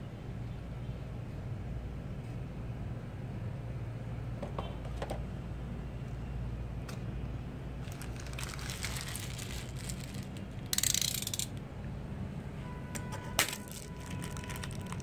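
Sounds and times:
foil wrapper crinkling: 7.8 - 10.6, 13.4 - 15.0.

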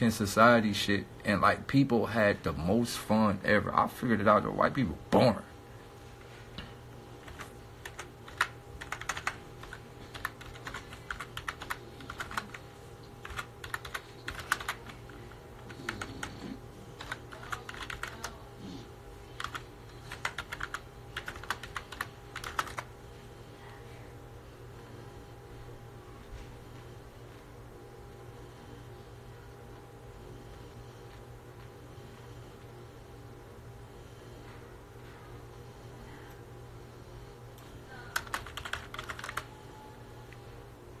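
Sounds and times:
steady low hum: 0.0 - 41.0.

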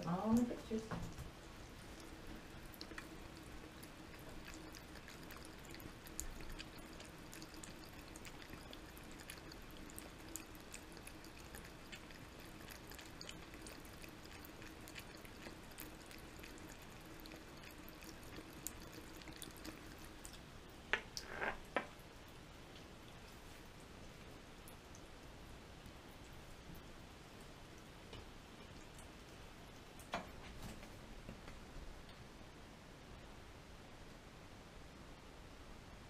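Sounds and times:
water trickling from faucet: 0.0 - 22.4
cat lapping water: 1.3 - 21.4.

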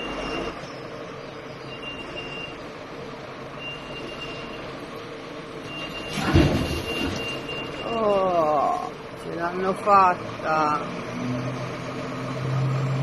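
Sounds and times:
crane engine running: 0.0 - 13.0
high warning beep: 1.6 - 2.6, 3.6 - 4.7, 5.7 - 8.8.

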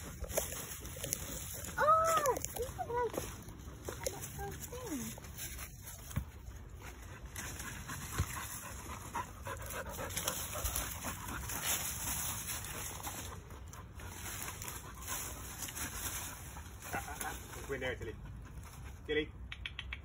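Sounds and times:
dry leaves rustling: 0.0 - 18.8
dog panting: 6.7 - 19.1.

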